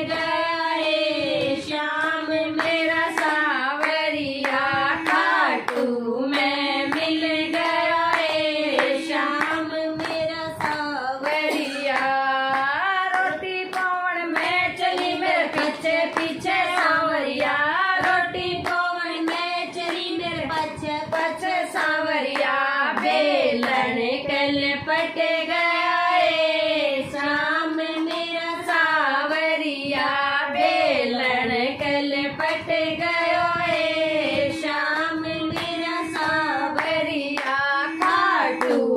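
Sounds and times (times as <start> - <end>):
hand-clapping keeping time: 0.0 - 38.9
women singing devotional song: 0.0 - 38.9.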